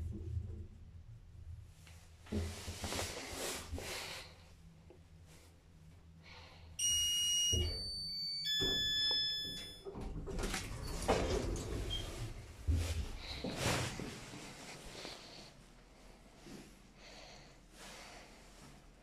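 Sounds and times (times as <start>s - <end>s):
lift arrival chime: 6.8s - 10.0s
lift doors sliding open: 8.5s - 12.7s.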